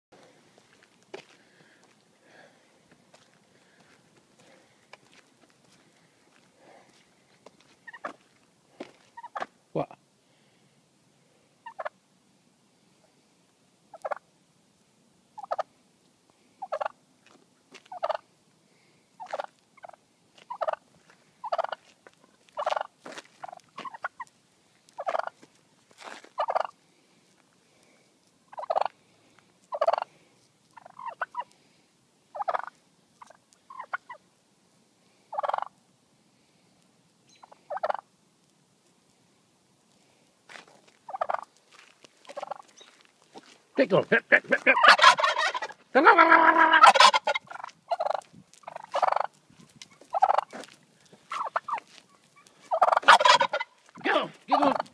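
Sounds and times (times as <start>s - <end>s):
turkey calling: 7.8s - 8.2s, 9.1s - 10.0s, 11.6s - 12.0s, 13.9s - 14.2s, 15.4s - 15.7s, 16.6s - 17.0s, 17.8s - 18.3s, 19.2s - 25.4s, 26.4s - 26.8s, 28.4s - 29.0s, 29.6s - 30.1s, 30.7s - 31.6s, 32.3s - 34.2s, 35.3s - 35.7s, 37.3s - 38.1s, 41.1s - 41.6s, 42.3s - 43.1s, 44.0s - 54.9s.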